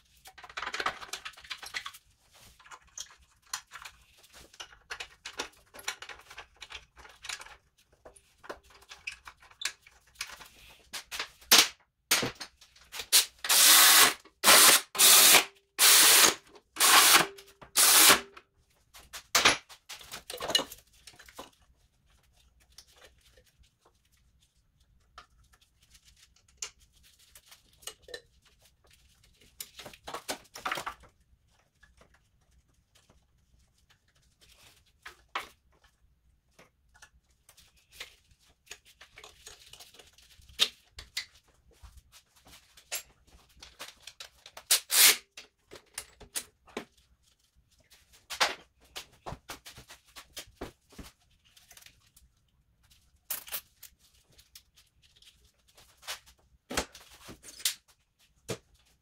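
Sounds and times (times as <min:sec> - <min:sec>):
plastic parts clicking and knocking: 0:00.0 - 0:18.5, 0:19.1 - 0:21.7, 0:25.0 - 0:32.4, 0:33.9 - 0:41.6, 0:42.8 - 0:47.0.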